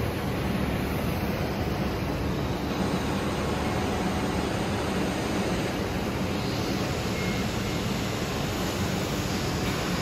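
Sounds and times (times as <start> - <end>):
constant low hum: 0.0 - 10.0
welding hiss: 0.0 - 10.0.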